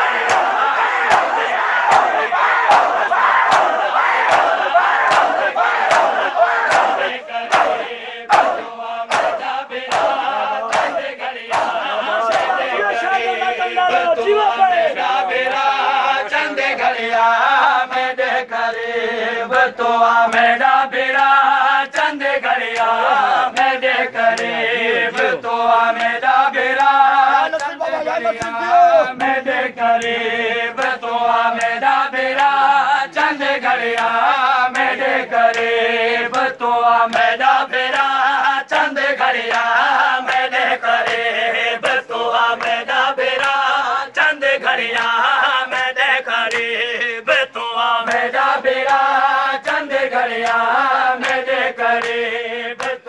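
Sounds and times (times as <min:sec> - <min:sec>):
men chanting in unison: 0:00.0 - 0:53.0
hands slapping chests: 0:00.1 - 0:12.6, 0:21.9 - 0:25.4, 0:26.0 - 0:26.2, 0:30.8 - 0:31.0, 0:31.6 - 0:32.6, 0:33.9 - 0:35.7, 0:36.3 - 0:38.2, 0:38.8 - 0:43.8, 0:44.8 - 0:47.4, 0:48.1 - 0:52.2, 0:52.8 - 0:53.0.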